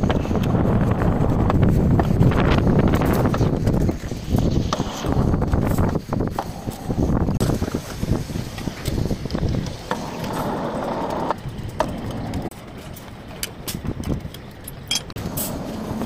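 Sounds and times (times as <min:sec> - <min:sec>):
steel bars clanking: 0:14.6 - 0:15.7.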